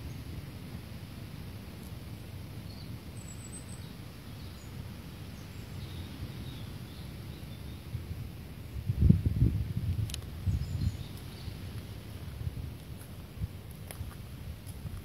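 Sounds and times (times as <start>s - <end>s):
faint high bird chirps: 2.2s - 8.0s, 10.4s - 11.7s.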